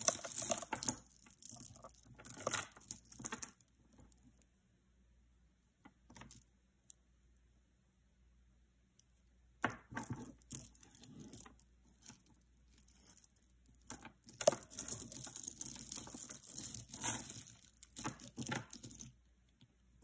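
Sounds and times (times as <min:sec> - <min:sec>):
beaded necklaces rattling and clicking: 0:00.0 - 0:04.4, 0:09.9 - 0:19.2.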